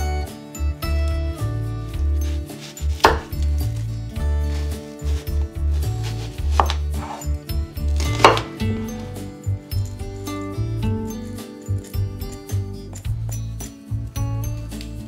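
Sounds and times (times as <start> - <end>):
background music: 0.0 - 15.0
knife chopping on wooden board: 2.2 - 3.7, 4.5 - 9.0.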